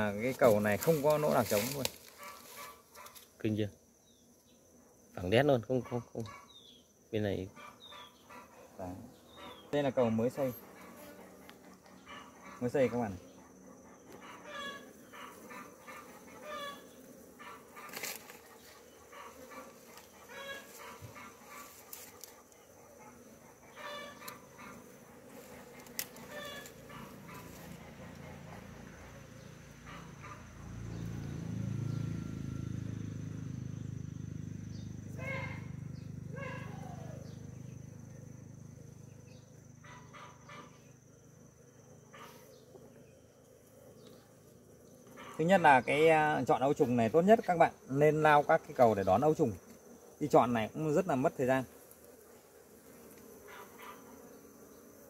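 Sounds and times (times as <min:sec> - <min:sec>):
honeybees humming: 0:00.0 - 0:55.0
animal short pitched calls: 0:14.2 - 0:18.0.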